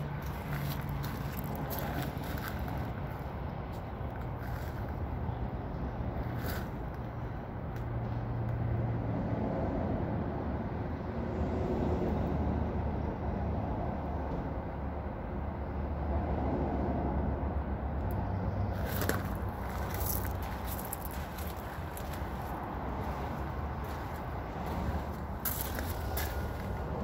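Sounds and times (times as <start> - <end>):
low outdoor rumble: 0.0 - 16.5, 17.1 - 27.0
sharp clicks and scuffs: 18.8 - 27.0.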